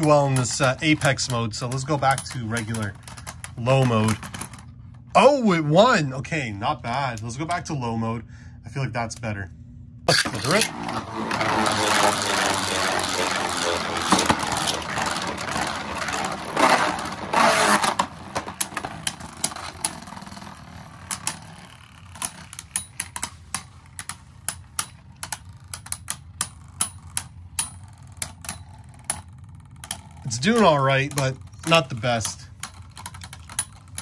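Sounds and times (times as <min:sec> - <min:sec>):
spinning tops whirring and scraping: 0:00.0 - 0:04.8, 0:10.1 - 0:34.0
spinning tops clicking together: 0:10.1 - 0:34.0.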